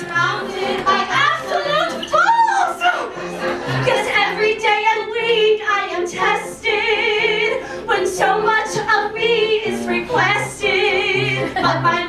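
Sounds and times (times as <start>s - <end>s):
piano accompaniment: 0.0s - 12.0s
women singing with vibrato: 0.0s - 12.0s.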